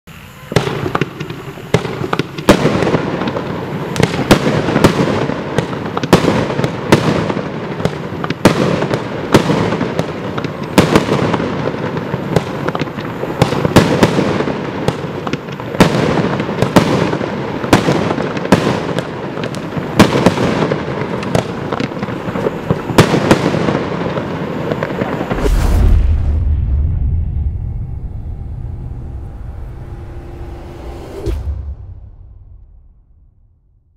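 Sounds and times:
firework crackle: 0.1 - 27.7
firework bangs: 0.1 - 30.0.

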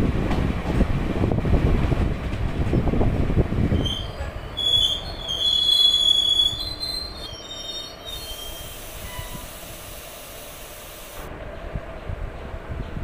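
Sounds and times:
low train rumble: 0.0 - 13.0
train wheels squealing on rails: 3.7 - 11.3.

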